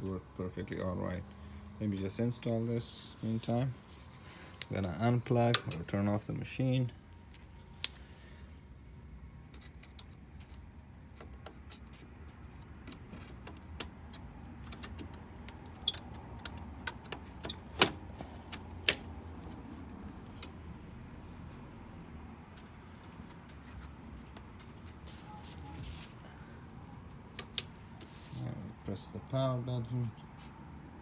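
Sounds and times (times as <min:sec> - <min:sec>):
low steady hum: 0:00.0 - 0:31.0
clicks and knocks of computer parts: 0:09.5 - 0:19.1.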